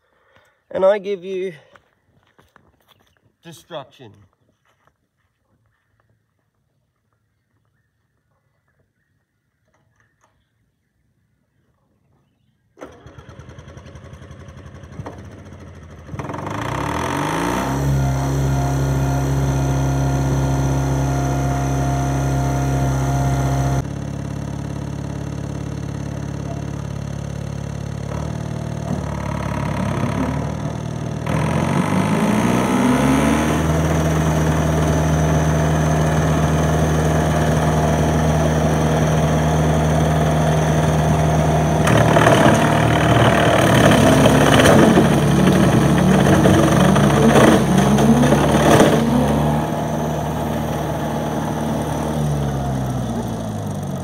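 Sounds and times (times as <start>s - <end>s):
tractor engine revving: 12.8s - 54.0s.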